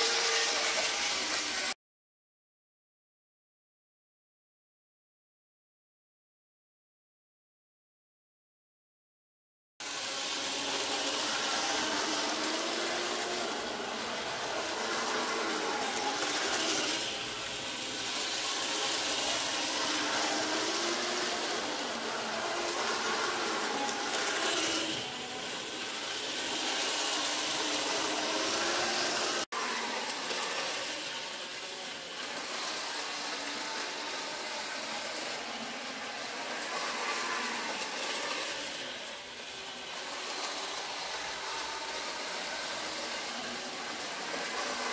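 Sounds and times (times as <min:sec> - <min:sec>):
model train wheels hissing: 0:00.0 - 0:01.8, 0:09.8 - 0:44.9
faint motor whine: 0:09.8 - 0:44.9.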